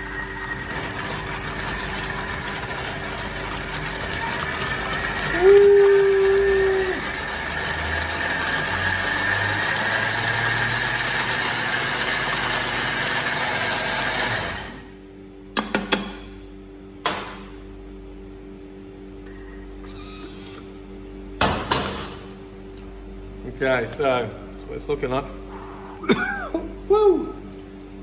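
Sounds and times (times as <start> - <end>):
blender motor running: 0.0 - 14.9.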